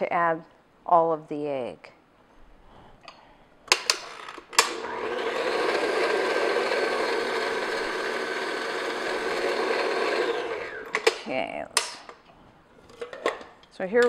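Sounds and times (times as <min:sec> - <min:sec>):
stand mixer motor running: 0:04.7 - 0:11.1.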